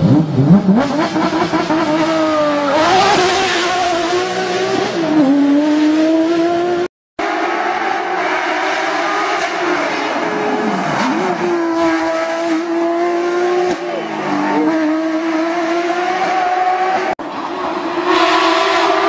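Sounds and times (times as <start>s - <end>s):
rally car engine at high revs: 0.0s - 19.0s.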